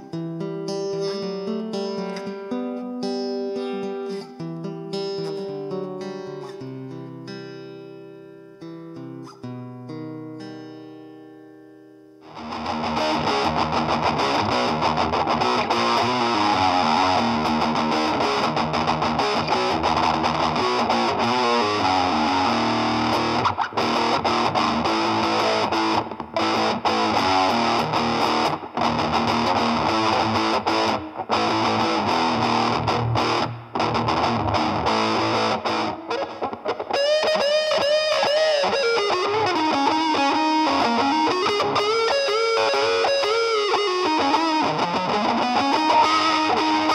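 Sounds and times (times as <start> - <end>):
clean picked guitar notes: 12.2 - 46.9
distorted electric guitar: 12.2 - 46.9.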